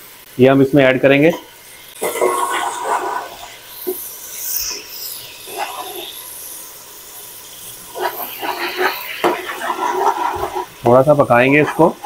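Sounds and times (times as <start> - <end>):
spices frying in hot oil: 0.0 - 12.0
metal spatula scraping pot: 2.0 - 6.2, 7.9 - 12.0.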